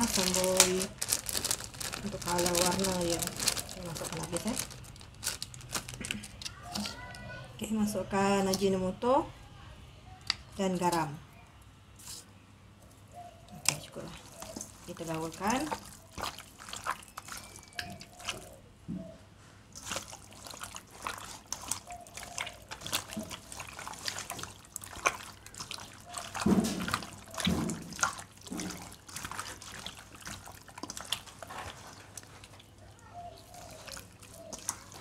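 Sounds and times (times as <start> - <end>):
hands squelching raw chicken: 0.0 - 7.0, 13.1 - 18.6, 19.7 - 35.0.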